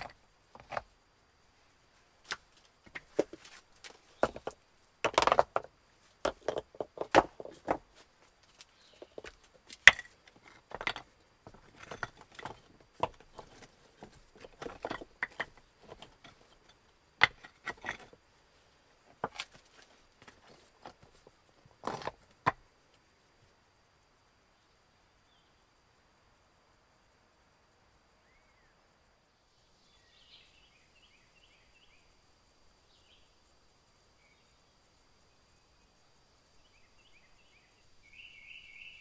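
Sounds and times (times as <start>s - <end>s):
handling knocks and clicks: 2.2s - 18.2s, 19.1s - 22.6s.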